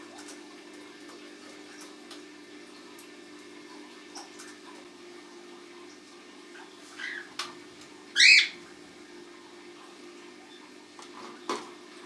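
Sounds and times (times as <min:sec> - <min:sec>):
cockatiels chirping and squawking: 0:07.0 - 0:07.3, 0:08.2 - 0:08.6.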